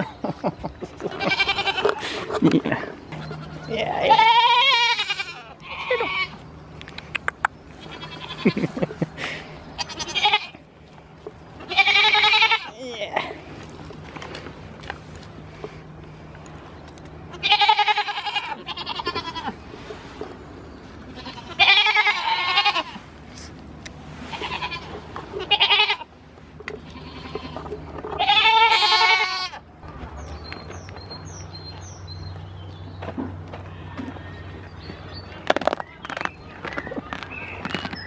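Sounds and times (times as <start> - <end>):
goats bleating: 0.9 - 2.4, 3.1 - 6.4, 7.8 - 8.8, 9.8 - 10.6, 11.6 - 13.3, 17.3 - 19.6, 21.1 - 23.1, 24.2 - 26.1, 26.8 - 29.6.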